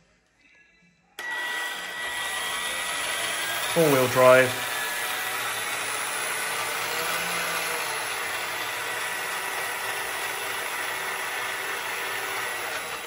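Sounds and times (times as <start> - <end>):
toy car motor whirring: 1.2 - 13.0.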